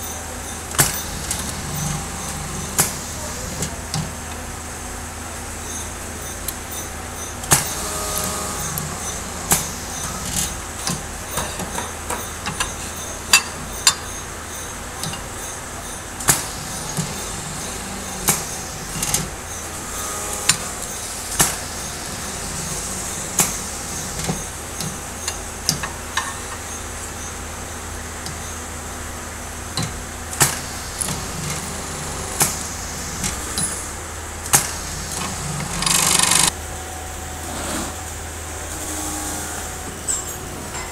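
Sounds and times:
machine motor hum: 0.0s - 36.6s
riveting machine knocks: 0.6s - 4.4s, 7.4s - 14.2s, 34.5s - 36.5s
loud burst of noise: 34.7s - 36.5s.

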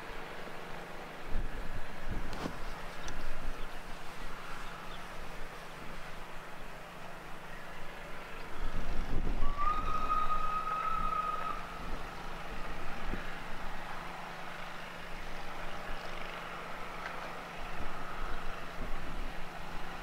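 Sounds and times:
train rumbling: 8.8s - 14.6s
steam locomotive whistle: 9.4s - 11.7s.

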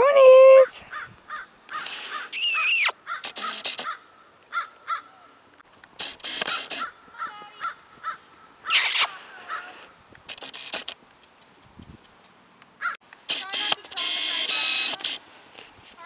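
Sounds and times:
crows cawing: 0.9s - 2.3s, 3.0s - 5.3s, 6.8s - 8.5s, 12.8s - 13.0s.

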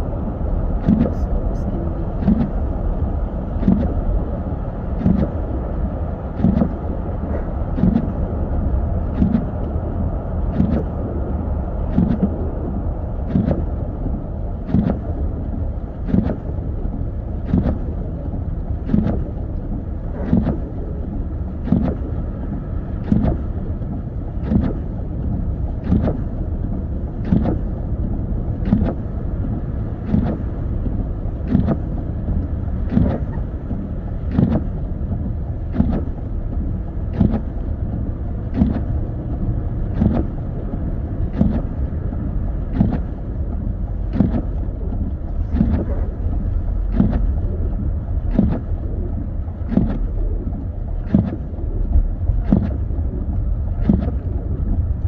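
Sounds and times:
road and tyre rumble: 0.0s - 55.0s
windshield wiper knocking: 0.8s - 1.2s, 2.1s - 2.6s, 3.6s - 4.0s, 5.0s - 5.4s, 6.4s - 6.8s, 7.8s - 8.2s, 10.5s - 10.9s, 11.9s - 12.3s, 13.3s - 13.7s, 14.7s - 15.1s, 16.1s - 19.4s, 20.2s - 20.8s, 21.6s - 22.2s, 23.0s - 27.8s, 28.5s - 55.0s.

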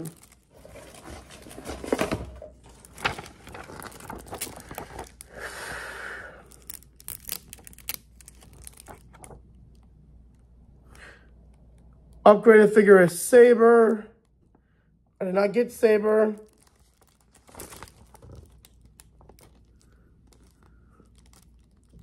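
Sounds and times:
paper crinkling and rustling: 0.0s - 5.4s, 6.5s - 9.9s, 16.2s - 22.0s.

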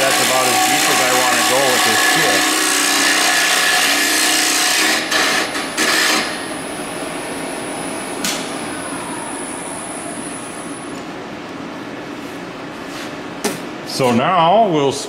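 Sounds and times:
tool shaving wood on lathe: 0.0s - 6.3s
lathe hum and whine: 0.0s - 15.0s.

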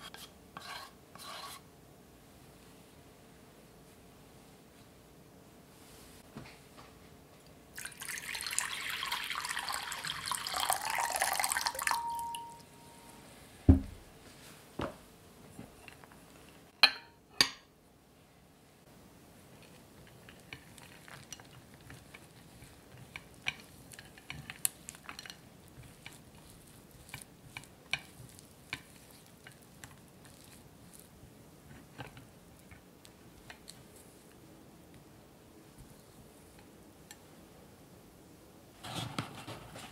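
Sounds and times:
spatula tapping and scraping a bowl: 0.0s - 1.6s, 19.7s - 33.8s
hot water pouring into a bowl: 7.8s - 12.2s
glass clinks: 11.8s - 12.7s.

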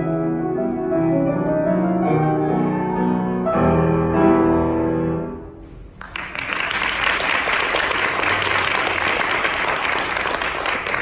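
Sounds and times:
audience applause: 6.0s - 11.0s.

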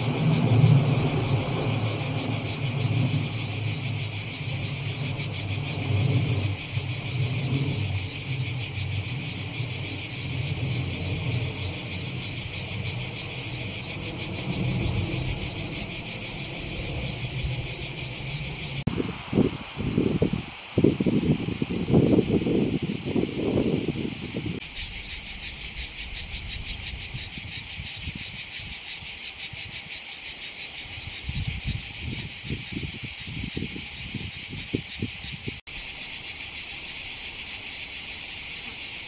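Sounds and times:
low uneven rumble: 0.0s - 18.9s
insects singing: 0.0s - 39.0s.

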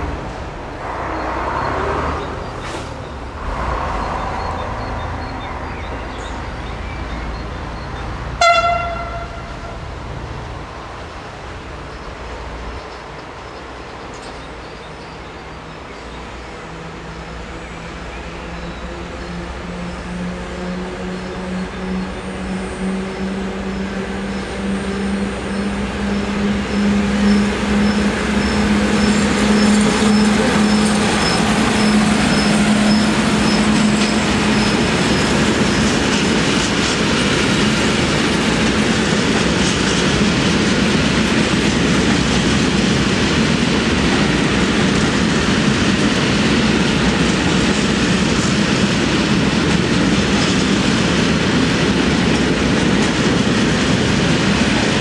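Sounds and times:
electric locomotive hum: 0.0s - 55.0s
wagon wheels rumbling over rails: 26.0s - 55.0s.

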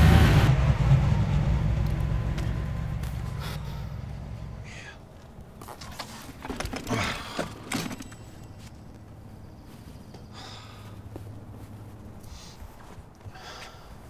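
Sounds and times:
car engine: 0.0s - 13.4s
knocks and clicks of bicycle: 5.6s - 8.8s.

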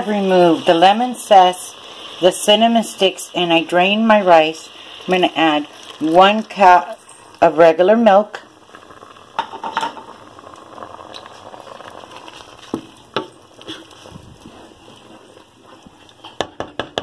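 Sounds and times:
soft bubbling sizzle: 0.0s - 17.0s
spoon stirring rice: 11.1s - 17.0s
spoon knocking against pan: 16.3s - 17.0s.

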